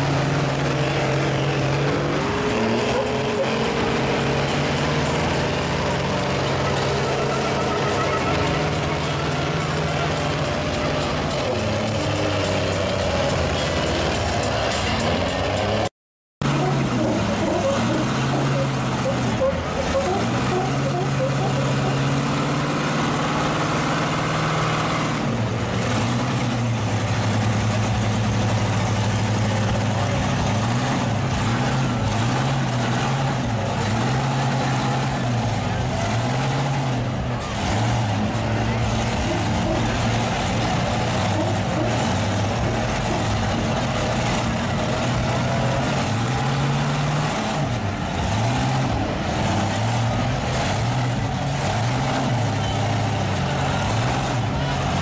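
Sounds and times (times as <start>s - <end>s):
truck engine running hard: 0.0s - 55.0s.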